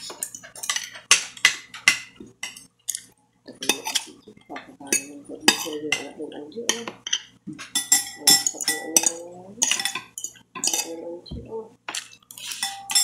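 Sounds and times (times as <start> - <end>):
cutlery clinking on plate: 6.7 - 11.0, 11.9 - 13.0.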